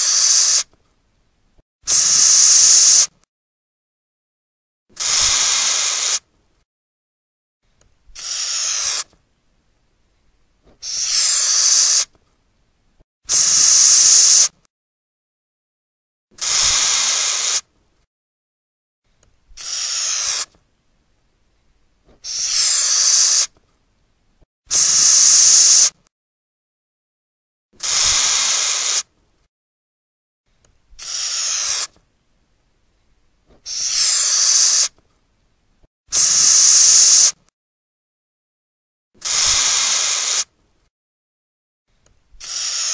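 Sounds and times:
cockroach hissing: 0.0 - 0.7, 1.9 - 3.1, 5.0 - 6.2, 8.2 - 9.0, 10.8 - 12.1, 13.3 - 14.5, 16.4 - 17.6, 19.6 - 20.5, 22.2 - 23.5, 24.7 - 26.0, 27.8 - 29.0, 31.0 - 31.9, 33.6 - 34.9, 36.1 - 37.4, 39.2 - 40.5, 42.4 - 42.9.

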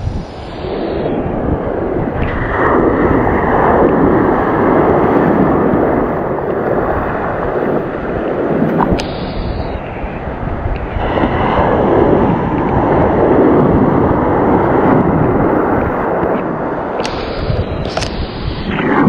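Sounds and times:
surf breaking and water rushing: 0.0 - 19.0
sharp clicks: 8.7 - 9.8, 17.0 - 19.0.

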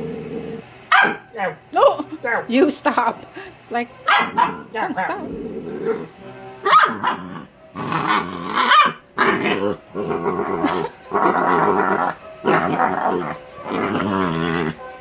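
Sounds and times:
puppy grunting and growling: 0.0 - 0.9, 4.2 - 15.0.

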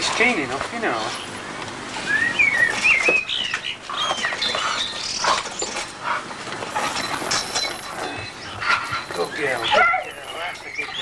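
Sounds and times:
dog whining: 6.8 - 11.0.

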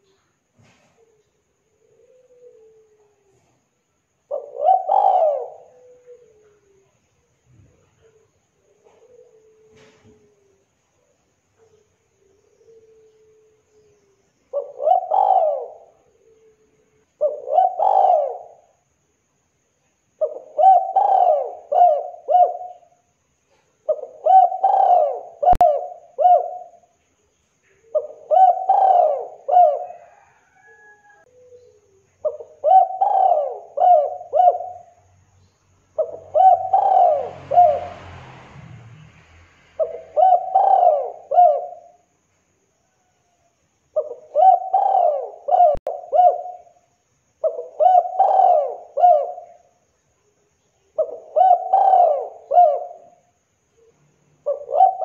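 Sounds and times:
dove cooing: 0.0 - 10.7, 11.6 - 18.8, 20.2 - 27.0, 27.7 - 35.0, 36.0 - 37.9, 39.8 - 42.1, 44.0 - 49.7, 51.0 - 55.0.

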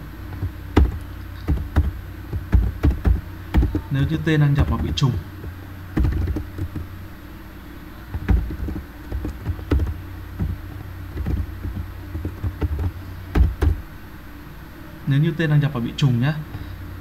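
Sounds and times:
steady low hum: 0.0 - 17.0
keyboard keys clicking: 0.3 - 6.9, 8.2 - 13.8.

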